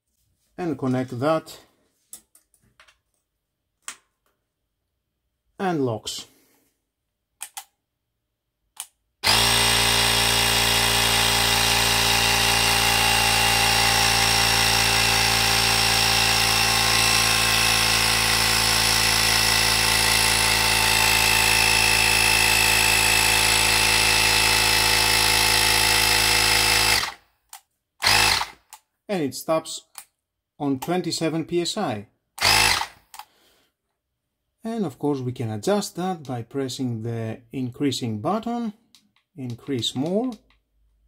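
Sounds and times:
air compressor motor running: 9.2 - 27.2, 28.0 - 28.5, 32.4 - 32.9.

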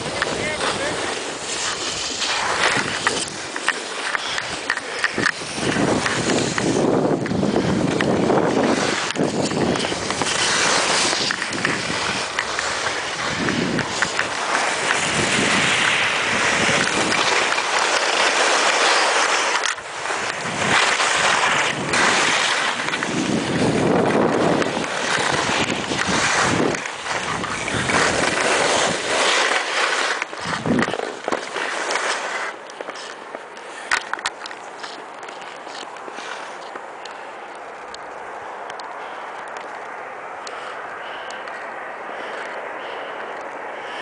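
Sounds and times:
wind rushing over microphone: 0.0 - 31.8
skis scraping on snow: 0.0 - 44.0.

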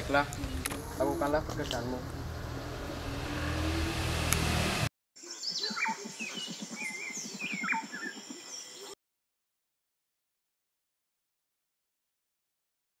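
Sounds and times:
birds chirping: 5.2 - 9.0.

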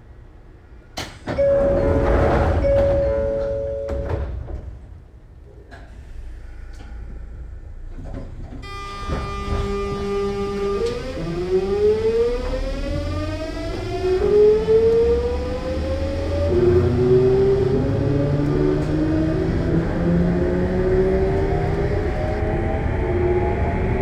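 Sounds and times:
electric train motor whine: 8.6 - 24.0.

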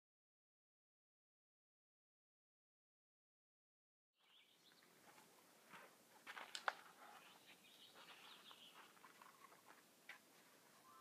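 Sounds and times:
rustles: 4.2 - 11.0
soft high bird chirps: 7.1 - 9.6.

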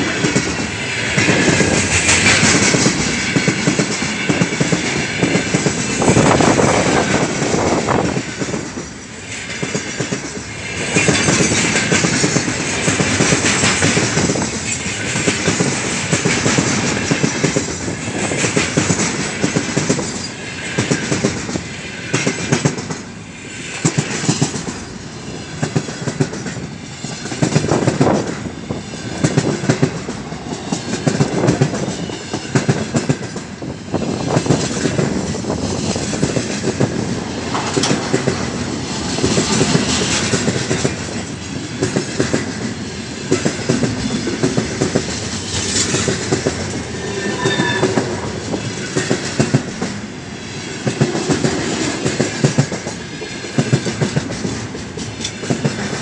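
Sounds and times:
freight train rumbling past: 0.0 - 56.0
wheels clattering over rail joints: 30.6 - 50.0
high wheel squeal: 46.7 - 49.1.

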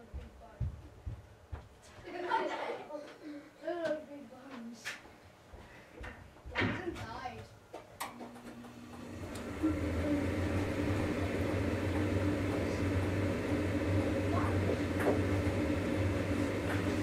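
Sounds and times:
gas furnace humming: 5.4 - 17.0.

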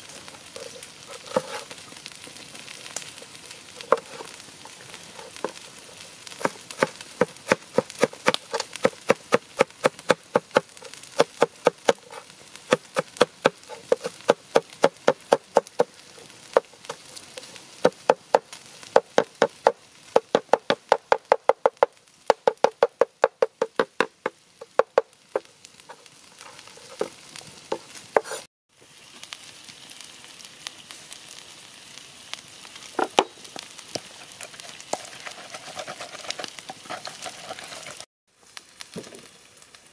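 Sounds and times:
cleaver chopping on wooden board: 6.4 - 12.1, 19.0 - 25.0
pestle knocking in mortar: 20.2 - 25.0.

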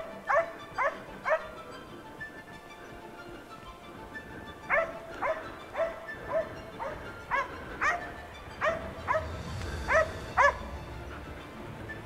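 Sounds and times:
dog barking: 0.2 - 1.6, 4.7 - 9.3, 9.9 - 10.7.

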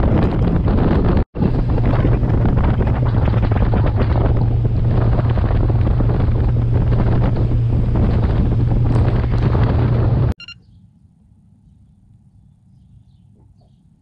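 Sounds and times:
outboard motor drone: 0.0 - 10.4
wind buffeting microphone: 0.0 - 10.4
water rushing past hull: 1.4 - 10.4.

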